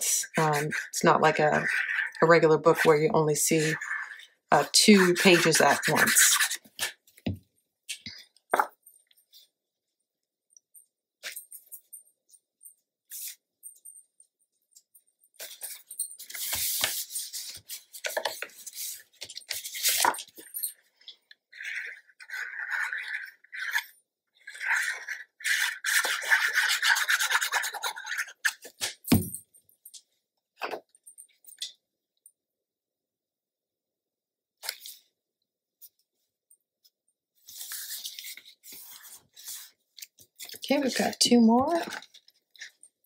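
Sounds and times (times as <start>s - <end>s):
paper rustling and rubbing: 37.4s - 39.8s.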